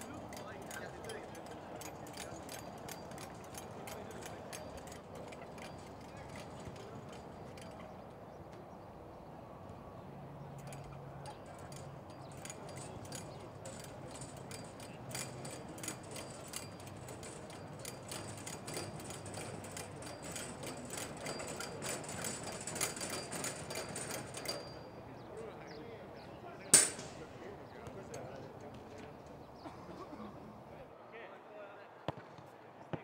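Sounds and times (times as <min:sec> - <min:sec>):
line-marking cart rattling: 0:00.0 - 0:08.4, 0:10.6 - 0:25.6, 0:26.7 - 0:27.4.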